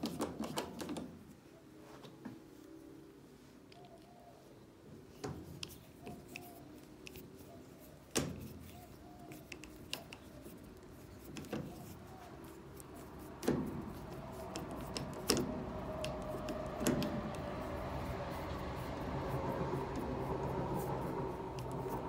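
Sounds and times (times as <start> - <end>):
rubbing noise: 5.4 - 22.0.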